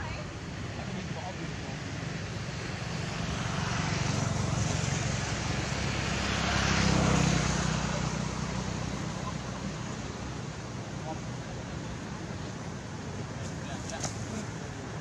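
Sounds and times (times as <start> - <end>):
engine droning past: 1.4 - 13.0.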